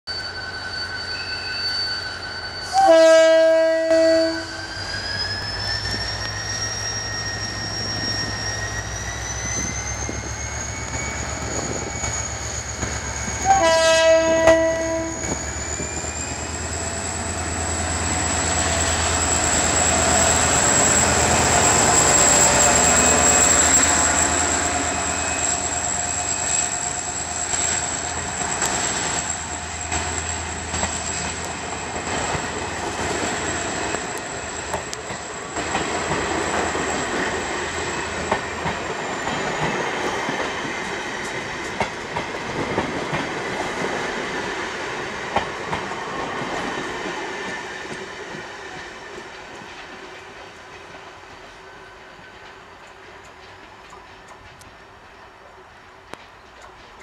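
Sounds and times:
locomotive horn blasts: 0:02.7 - 0:04.7, 0:13.4 - 0:15.2
high whine: 0:14.2 - 0:38.4.

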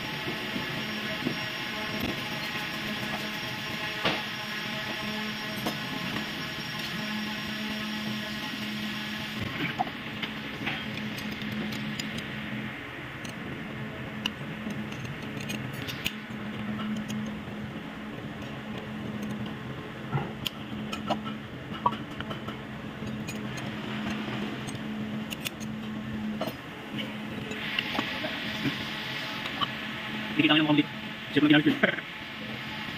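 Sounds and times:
steady low hum: 0:00.0 - 0:32.9
hand tools clicking and tapping: 0:14.2 - 0:16.2.

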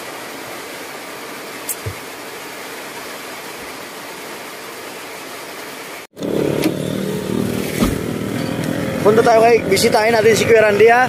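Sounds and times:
street traffic: 0:06.1 - 0:11.0
vehicle engine running: 0:06.2 - 0:11.0.

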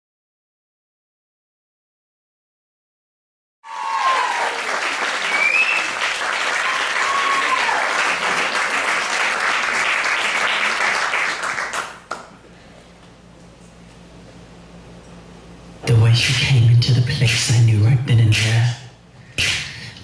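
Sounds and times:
cheers: 0:03.6 - 0:08.9
audience applauding: 0:03.6 - 0:12.3.

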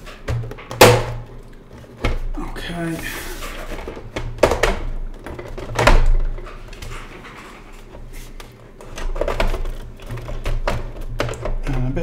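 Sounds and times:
plastic clips clicking and knocking: 0:08.8 - 0:12.0.

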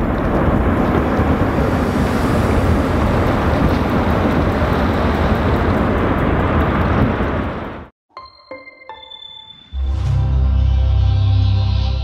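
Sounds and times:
boat engine rumble: 0:00.0 - 0:07.9
rushing water: 0:00.0 - 0:07.9
wind noise: 0:00.0 - 0:07.9.

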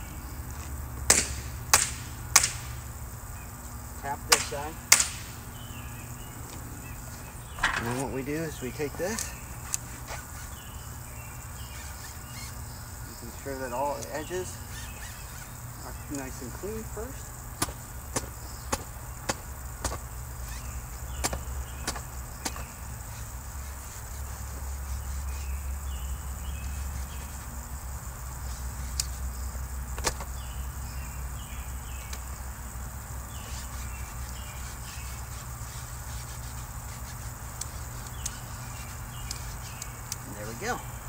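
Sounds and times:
towel wiping a window screen: 0:33.4 - 0:39.8.

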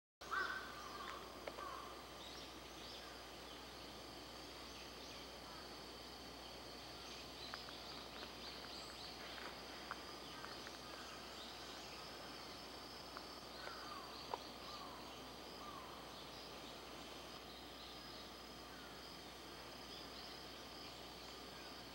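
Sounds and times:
insect drone: 0:00.2 - 0:21.9
short falling bird calls: 0:00.3 - 0:02.0.

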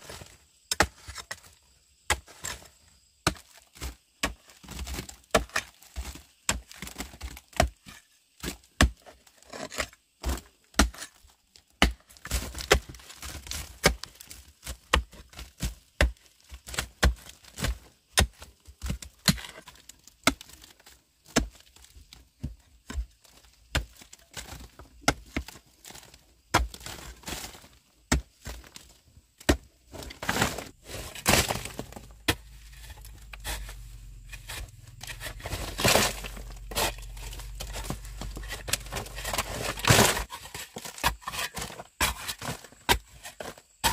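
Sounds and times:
pickaxe striking rock: 0:09.8 - 0:11.1, 0:13.5 - 0:14.0, 0:31.2 - 0:43.1
loose rubble scraping and rattling: 0:29.5 - 0:43.9
rock flakes clattering: 0:30.2 - 0:33.7.

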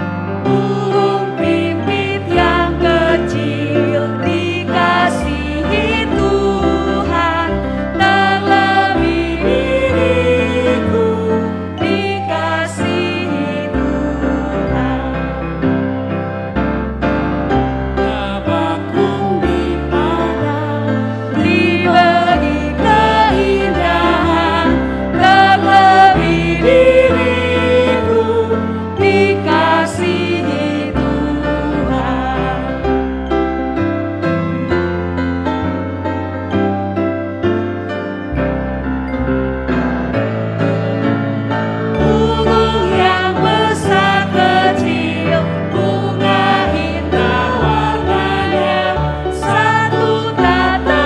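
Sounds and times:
electric keyboard: 0:00.0 - 0:51.0
piano accompaniment: 0:00.0 - 0:51.0
woman and man singing a hymn: 0:00.5 - 0:15.6, 0:18.0 - 0:32.9, 0:42.0 - 0:51.0.

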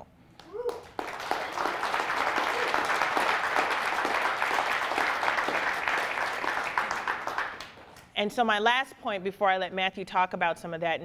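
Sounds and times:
audience applauding: 0:00.4 - 0:08.0.

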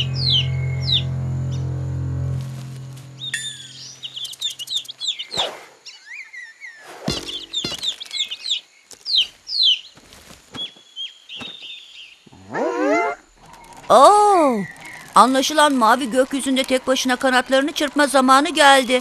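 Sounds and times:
cartoon bird chirping: 0:03.4 - 0:05.4
short thumps: 0:07.1 - 0:08.3.

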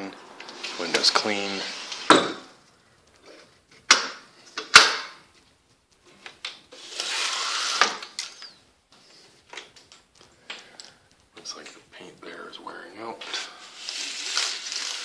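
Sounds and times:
window sliding rasp: 0:00.0 - 0:02.6, 0:06.7 - 0:08.2.

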